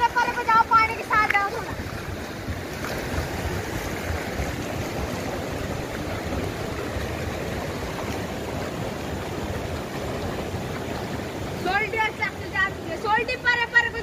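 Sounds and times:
river rushing over rocks: 0.0 - 14.0.

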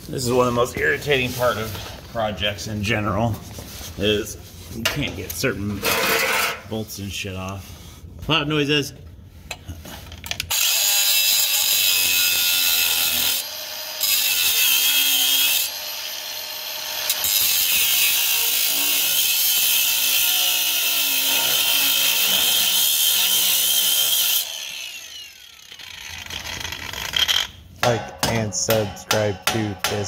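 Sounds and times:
angle grinder cutting metal: 10.5 - 27.5.

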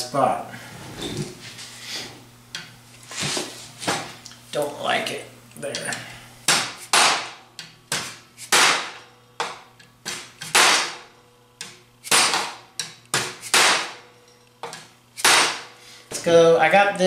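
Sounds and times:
hammer striking sheet steel: 6.5 - 11.1, 12.0 - 12.6, 13.2 - 14.0, 15.2 - 15.7.

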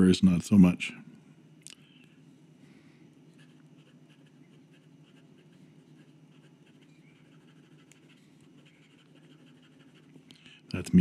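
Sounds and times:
low steady hum: 0.0 - 11.0
pen nib scratching paper: 3.3 - 10.3.

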